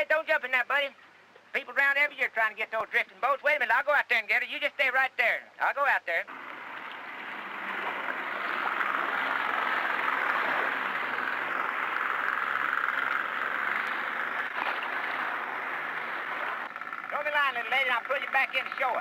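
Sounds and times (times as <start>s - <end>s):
outboard motor running: 6.3s - 19.0s.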